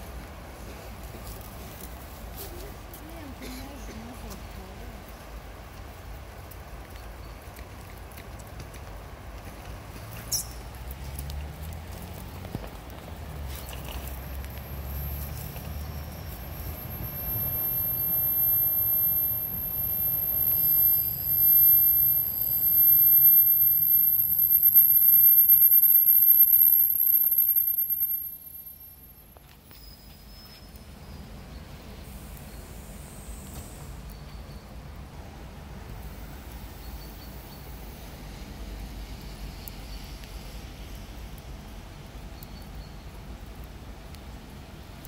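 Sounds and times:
faint ticks: 0:06.5 - 0:15.8
short high squeak: 0:10.3 - 0:10.7, 0:14.8 - 0:29.0, 0:29.6 - 0:30.9
electric train rumble: 0:12.8 - 0:29.0.

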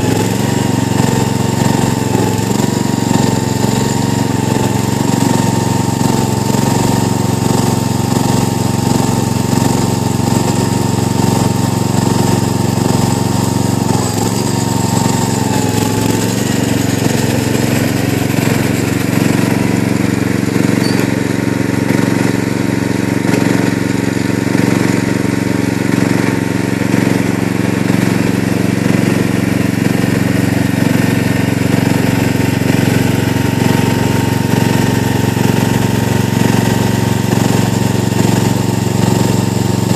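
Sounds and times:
garden tractor engine running: 0:00.0 - 0:39.9
thin high whine: 0:20.8 - 0:21.2.

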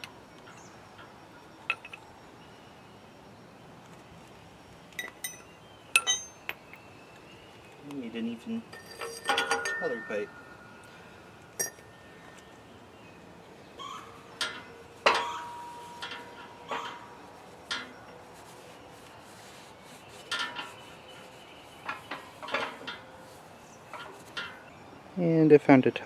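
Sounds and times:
metal clinks and knocks: 0:00.4 - 0:02.1, 0:05.0 - 0:06.8, 0:08.6 - 0:10.7, 0:11.5 - 0:12.4, 0:14.3 - 0:18.2, 0:21.8 - 0:23.2.

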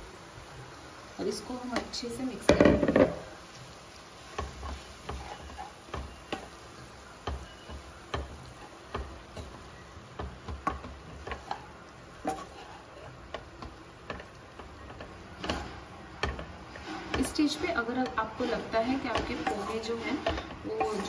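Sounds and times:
wooden spatula scraping pan: 0:04.2 - 0:21.0.

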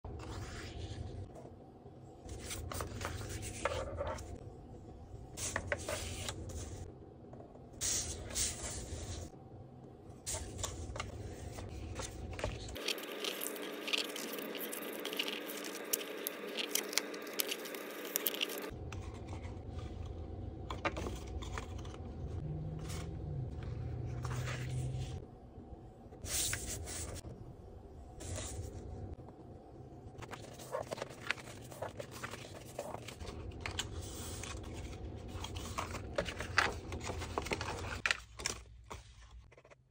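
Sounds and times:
paper scraping and rustling: 0:10.3 - 0:20.1, 0:30.2 - 0:39.8.

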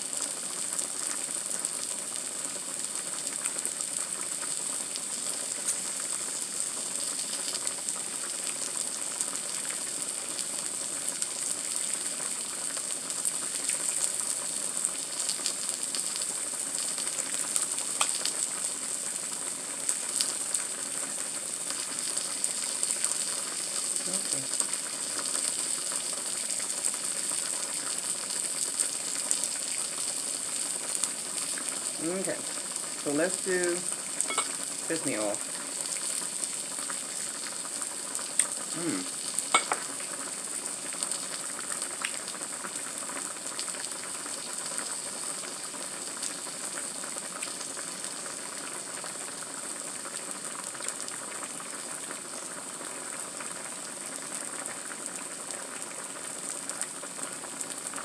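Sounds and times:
food sizzling on griddle: 0:00.0 - 0:58.0
small crackles: 0:03.0 - 0:08.6, 0:15.2 - 0:56.0.

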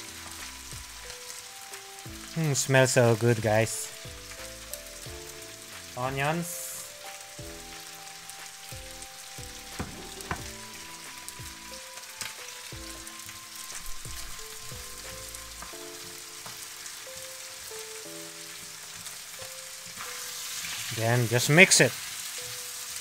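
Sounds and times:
chicken and onions sizzling in wok: 0:00.0 - 0:23.0
spatula scraping and knocking pan: 0:09.7 - 0:10.6.

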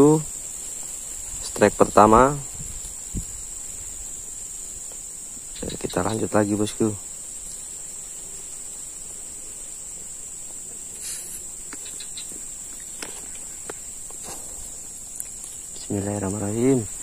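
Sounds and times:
insects droning: 0:00.0 - 0:17.0
faint clicks and rustles: 0:10.3 - 0:16.5.

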